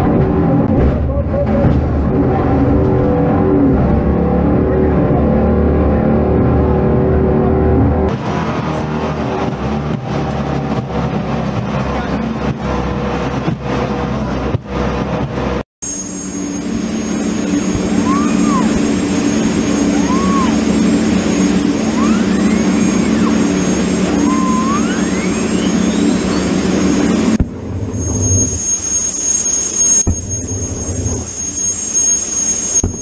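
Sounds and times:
boat engine running: 0.0 - 33.0
high thin whine: 15.8 - 33.0
whistled notes: 15.8 - 33.0.

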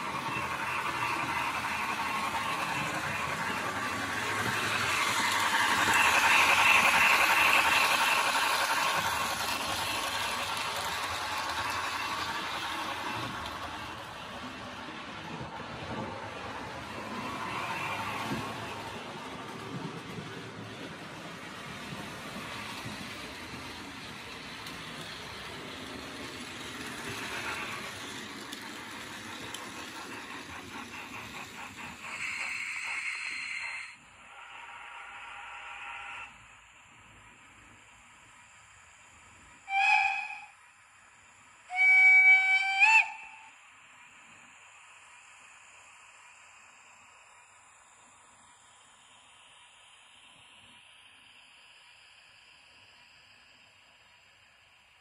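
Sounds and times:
model steam engine hiss: 0.0 - 55.0.

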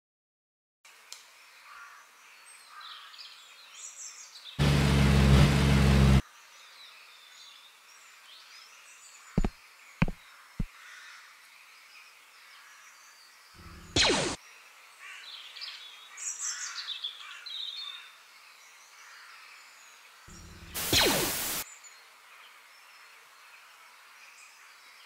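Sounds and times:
short sharp knocks: 9.4 - 10.2
sci-fi blaster zaps: 13.6 - 14.4, 20.3 - 21.6
birds chirping: 20.3 - 21.6.

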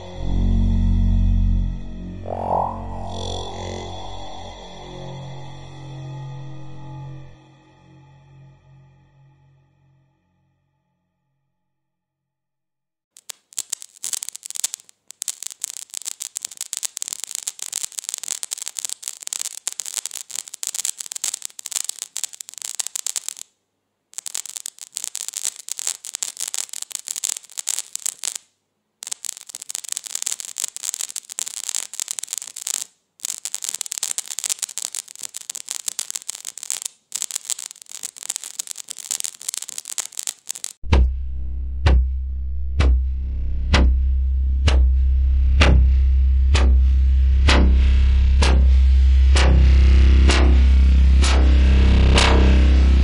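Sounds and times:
electric sparks crackling: 0.0 - 4.4, 13.1 - 23.5, 24.1 - 40.9, 46.5 - 53.0.

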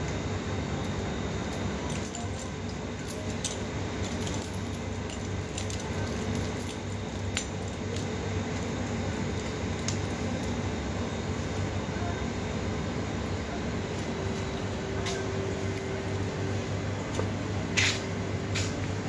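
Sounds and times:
low background hum: 0.0 - 19.0
metal chain collar jingling: 1.9 - 7.8.

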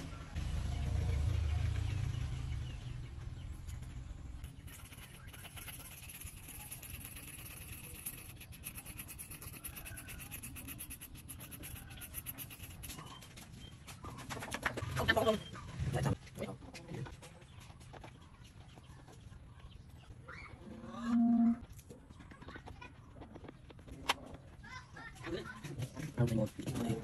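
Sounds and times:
low rumble: 0.0 - 4.8
scratchy brush strokes: 4.4 - 13.7.

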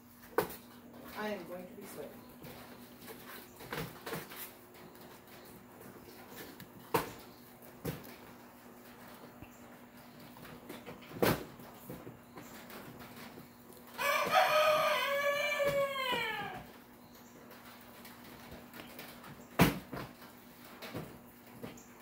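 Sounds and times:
rooster crowing: 14.0 - 16.8.

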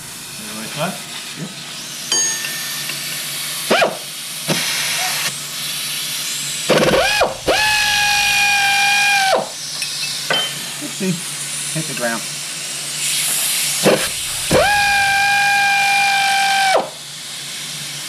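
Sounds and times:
steady air hiss: 0.0 - 18.0
air ratchet whining: 6.7 - 9.6, 13.8 - 17.0.

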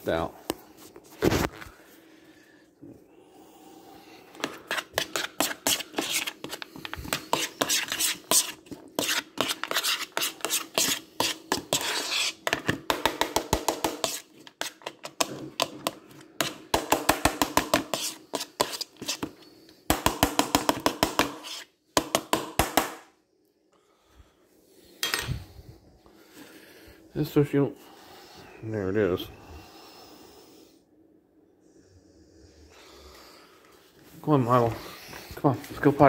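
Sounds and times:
metal spoon scraping bowl: 4.5 - 12.7, 14.0 - 16.6, 17.6 - 19.4, 21.1 - 21.7.

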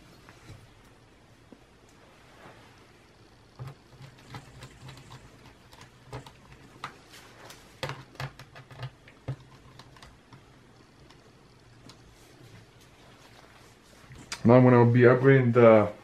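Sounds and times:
hands clicking laptop parts: 3.6 - 11.2.

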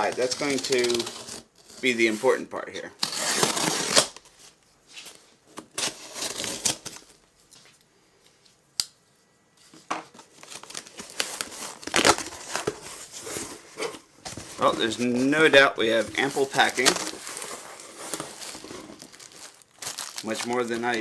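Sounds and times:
packing tape tearing: 0.0 - 1.8, 3.0 - 4.2, 5.6 - 7.1, 10.4 - 13.0, 16.2 - 21.0
cardboard flaps scraping and rustling: 10.2 - 21.0.

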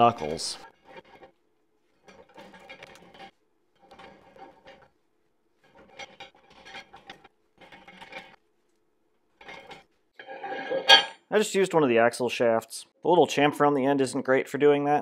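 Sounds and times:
metal scraping and clicking: 0.0 - 5.0, 5.6 - 8.4, 9.4 - 11.2.

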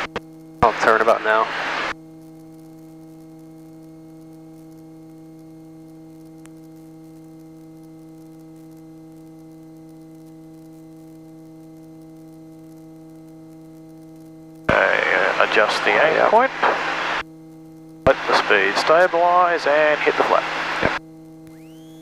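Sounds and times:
aircraft engine hum: 14.7 - 17.2, 18.1 - 21.0
faint hiss: 14.7 - 17.2, 18.1 - 21.0.

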